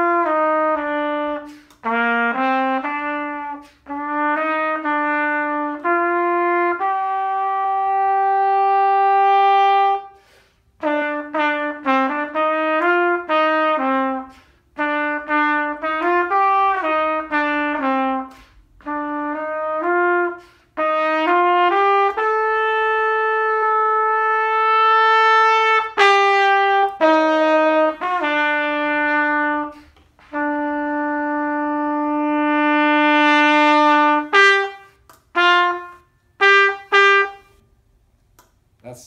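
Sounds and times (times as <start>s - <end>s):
solo trumpet playing: 0.0s - 37.8s.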